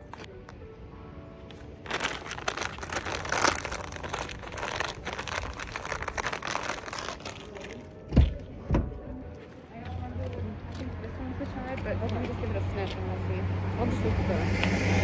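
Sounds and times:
plastic snack bag crinkling: 1.8 - 7.9.

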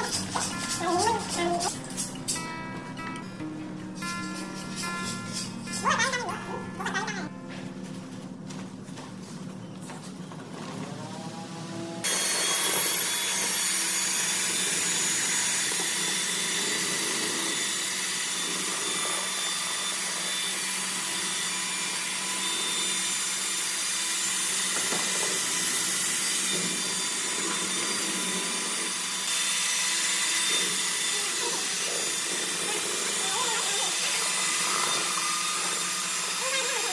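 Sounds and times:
electric paddle mixer running: 10.3 - 36.9.

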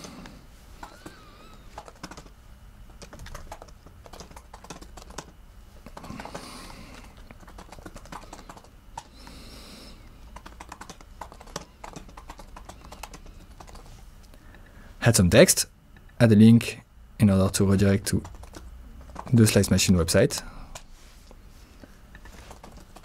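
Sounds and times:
keyboard typing: 0.8 - 2.3, 2.9 - 9.3, 10.3 - 13.9, 18.1 - 19.6, 22.2 - 23.0.

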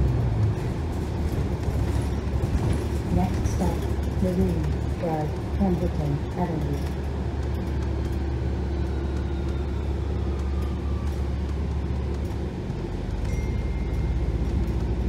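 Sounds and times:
bus engine rumble: 0.0 - 15.0.

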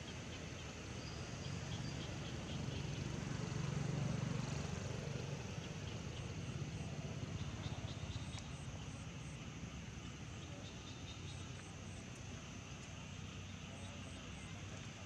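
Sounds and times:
low engine rumble: 0.0 - 15.0
faint insect chirps: 4.4 - 15.0.

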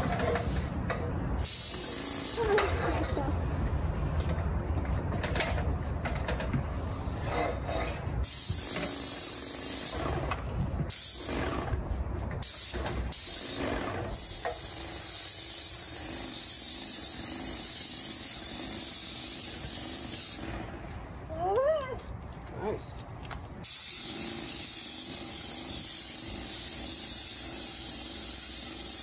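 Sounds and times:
paint sprayer gun hissing: 1.5 - 2.6, 8.2 - 10.0, 12.4 - 20.4, 23.6 - 29.0.

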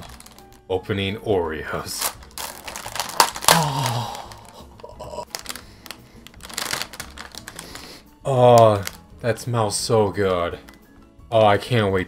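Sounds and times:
plastic package crinkling: 0.0 - 0.7, 1.9 - 9.3
man groaning: 3.4 - 5.3.

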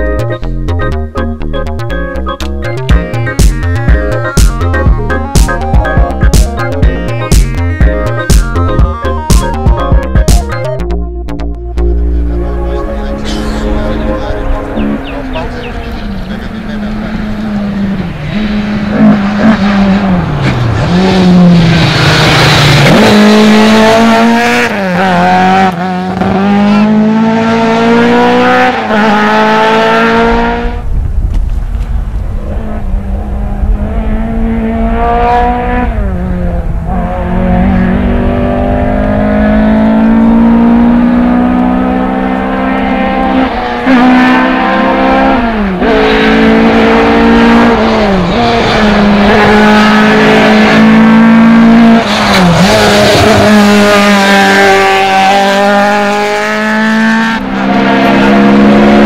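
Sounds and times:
rally car engine revving: 11.3 - 30.9, 32.2 - 59.0.

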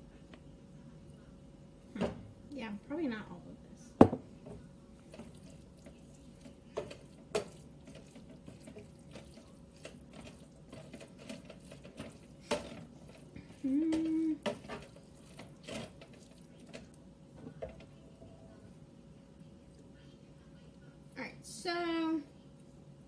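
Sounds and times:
spoon stirring wet mixture: 4.4 - 21.2.

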